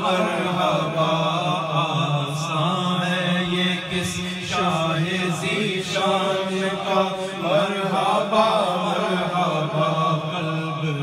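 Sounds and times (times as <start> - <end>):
men chanting: 0.0 - 11.0.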